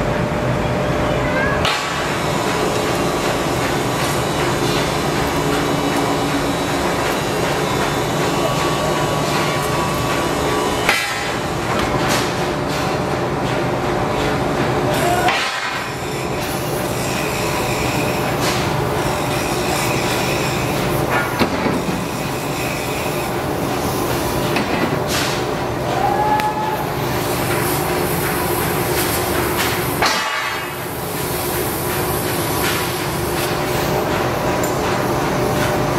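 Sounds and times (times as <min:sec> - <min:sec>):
workshop background din: 0:00.7 - 0:35.9
steel clanks and hammer strikes: 0:15.2 - 0:16.5, 0:29.6 - 0:30.8.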